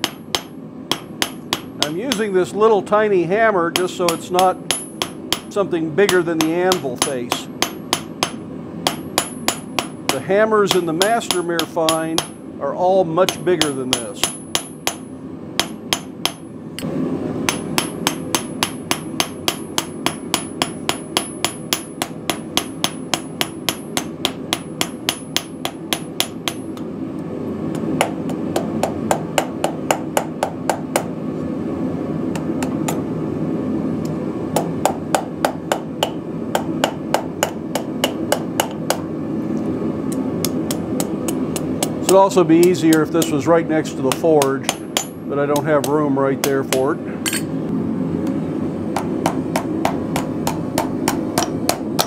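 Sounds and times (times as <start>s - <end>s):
hammer striking hot steel on anvil: 0.0s - 2.4s, 3.7s - 12.5s, 13.2s - 26.9s, 27.7s - 31.1s, 32.3s - 33.0s, 34.6s - 39.1s, 40.1s - 47.5s, 48.9s - 52.0s
high anvil ring: 47.2s - 47.5s.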